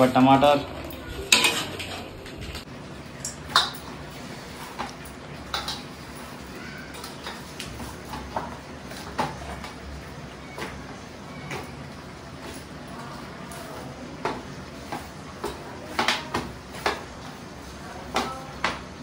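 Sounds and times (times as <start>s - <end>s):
utensils knocking on cookware: 1.2s - 2.4s.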